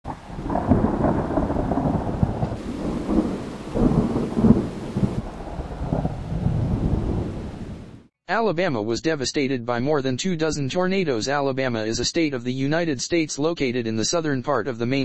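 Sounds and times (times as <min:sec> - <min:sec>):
thunder cracking and rumbling: 0:00.0 - 0:08.1
steady rain: 0:00.1 - 0:08.1.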